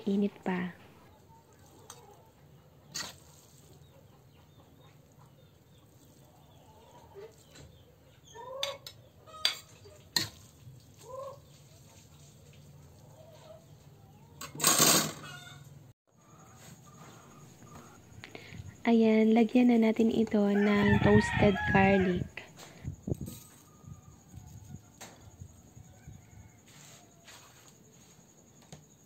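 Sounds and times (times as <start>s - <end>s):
utensil scraping a wok: 1.5s - 4.3s, 8.6s - 13.1s.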